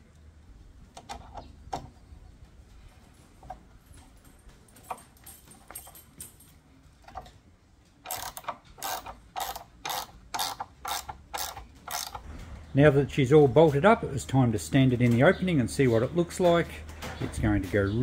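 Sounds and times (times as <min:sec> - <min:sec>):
ratchet wrench clicking: 0:08.0 - 0:12.2.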